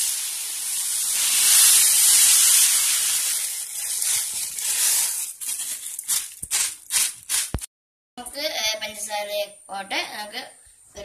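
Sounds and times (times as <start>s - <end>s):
sugar pouring into metal pan: 0.0s - 7.6s.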